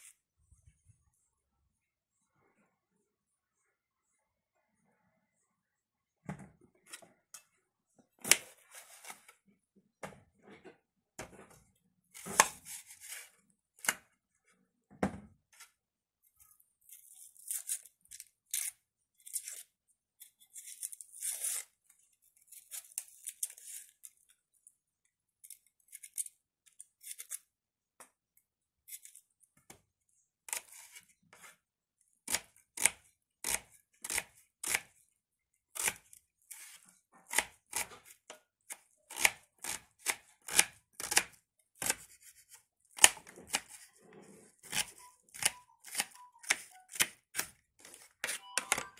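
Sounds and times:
knife scraping onion: 12.1s - 14.0s, 16.9s - 21.8s, 30.5s - 31.6s, 32.2s - 34.9s, 35.7s - 48.9s.

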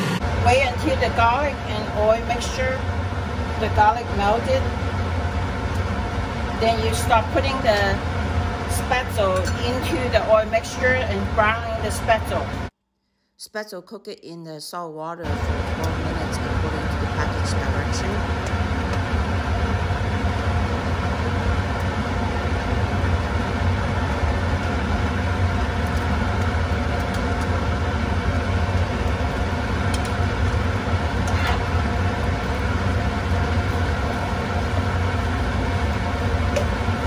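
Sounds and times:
constant low hum: 0.0s - 12.8s, 15.2s - 37.0s
food sizzling in butter and oil: 15.5s - 37.0s.

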